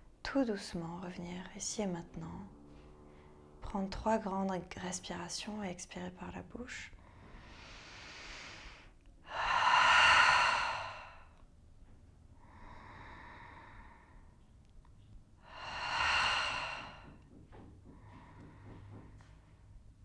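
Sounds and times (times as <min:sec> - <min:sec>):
person breathing deeply: 0:07.0 - 0:11.4, 0:12.4 - 0:14.3, 0:15.4 - 0:17.2.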